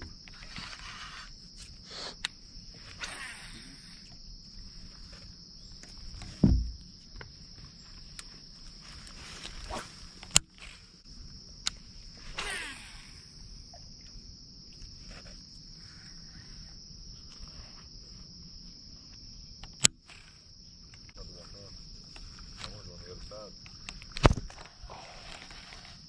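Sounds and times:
high-pitched insect drone: 0.0s - 26.0s
fishing reel whir: 2.9s - 4.0s, 12.2s - 13.4s, 20.0s - 20.5s.

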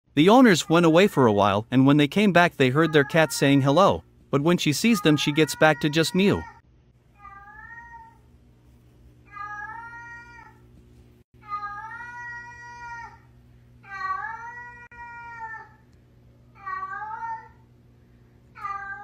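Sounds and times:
cat meowing: 7.2s - 8.2s, 18.6s - 19.0s.

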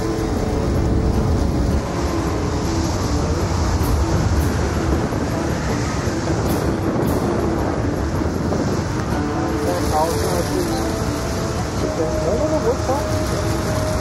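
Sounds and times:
storm wind rumbling and rushing: 0.0s - 14.0s.

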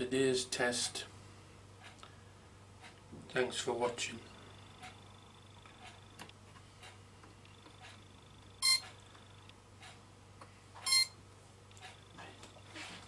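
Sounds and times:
shrill electronic beeps: 8.6s - 8.8s, 10.9s - 11.2s.

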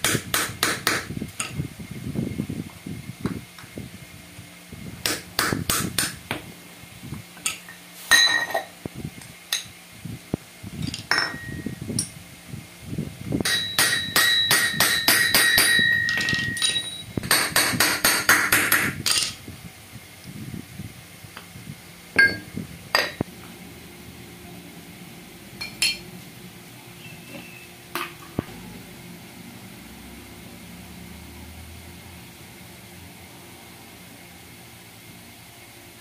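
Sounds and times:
hammer tapping on metal: 13.4s - 19.0s.

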